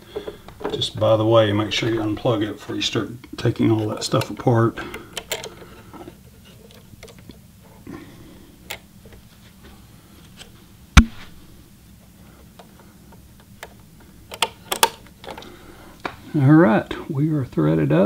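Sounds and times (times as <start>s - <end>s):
sewing machine parts clicking: 4.0s - 5.8s, 13.6s - 15.5s.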